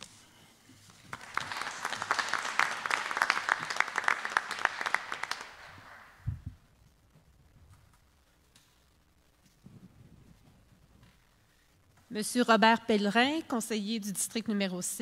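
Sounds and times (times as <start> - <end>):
small group clapping: 0.8 - 6.3.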